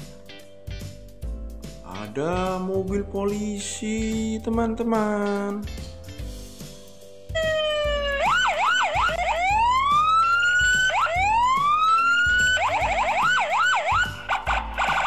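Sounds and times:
low pulsing beat: 7.3s - 15.0s
electronic police siren: 7.4s - 15.0s.

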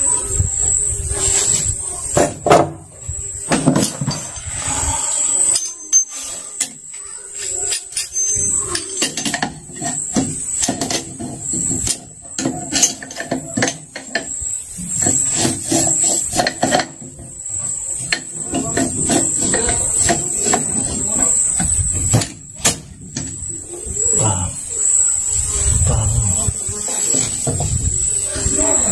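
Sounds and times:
metal parts knocking and clanking: 3.5s - 4.5s, 5.5s - 23.5s.

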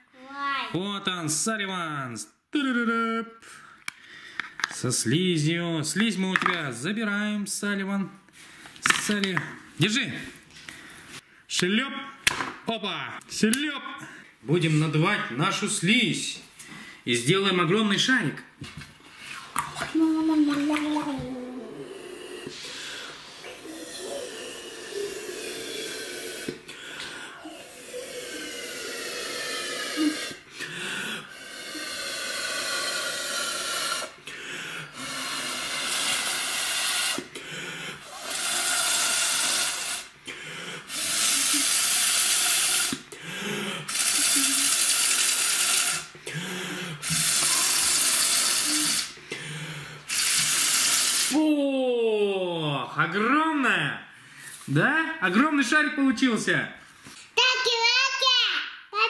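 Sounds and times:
hissing blows through straws: 21.8s - 30.5s, 31.2s - 34.2s, 34.9s - 37.4s, 38.0s - 40.2s, 40.8s - 43.2s, 43.9s - 46.1s, 47.0s - 49.2s, 50.1s - 51.4s.

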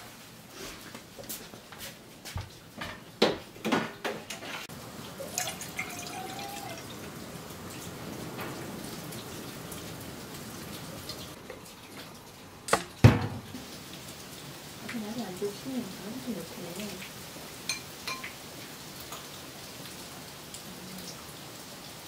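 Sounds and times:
liquid pouring into pot: 5.2s - 6.9s.

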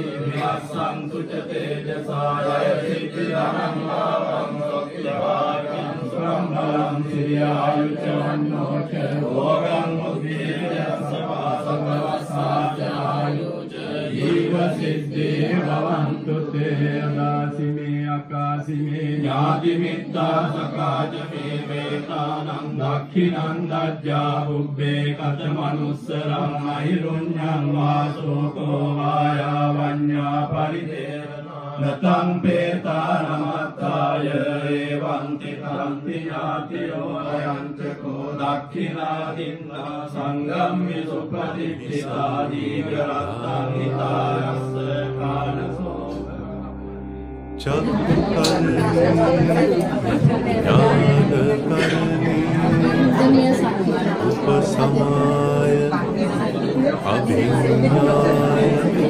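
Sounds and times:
men chanting together: 0.0s - 46.0s, 47.6s - 59.0s.

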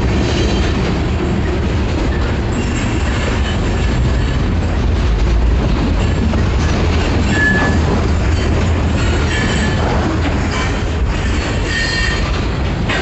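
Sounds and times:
steel wheels rumbling on rail: 0.0s - 13.0s
high wheel squeal: 7.0s - 12.3s.

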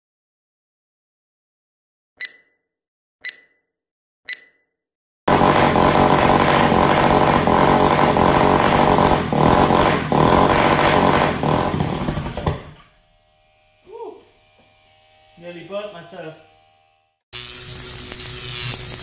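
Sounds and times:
countdown beeps: 2.2s - 2.6s, 3.2s - 3.7s, 4.3s - 4.7s
rc car engine at high revs: 5.3s - 12.8s.

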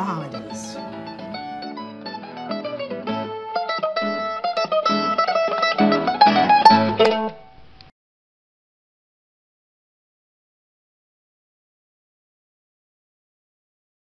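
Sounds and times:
plucked-string instrumental music: 0.0s - 7.9s.

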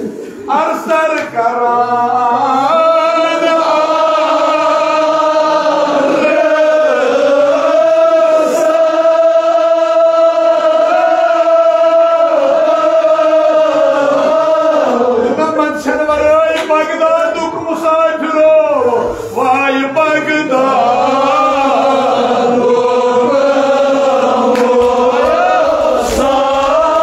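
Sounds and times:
man chanting an elegy: 15.2s - 21.7s.

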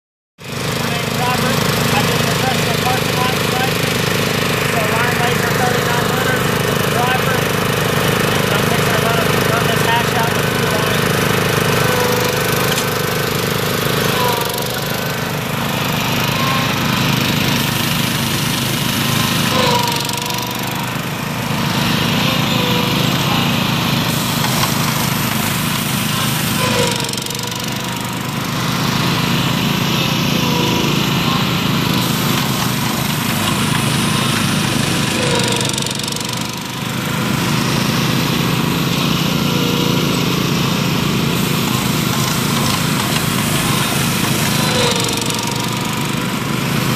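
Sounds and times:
small gasoline engines running: 0.4s - 46.9s.

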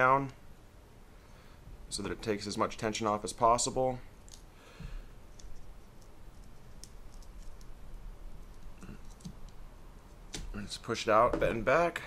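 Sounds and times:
small metal parts clicking: 5.4s - 7.7s.

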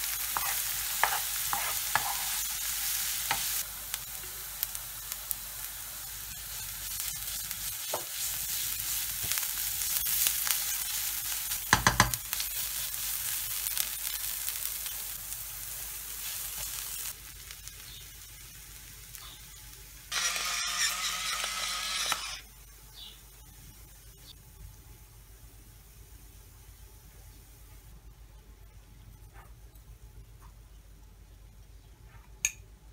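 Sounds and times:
wooden spoon stirring and scraping: 0.0s - 2.6s
vegetables sizzling in frying pan: 0.0s - 22.4s
spoon knocking on pan: 11.7s - 12.2s.

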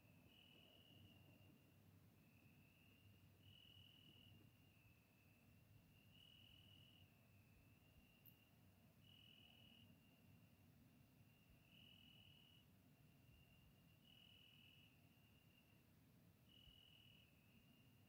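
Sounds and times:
cricket trilling: 0.3s - 8.4s, 9.0s - 10.2s, 11.3s - 15.6s, 16.5s - 18.0s.

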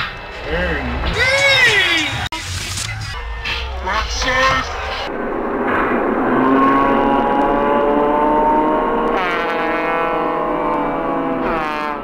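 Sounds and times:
motor engine revving: 6.2s - 12.0s.

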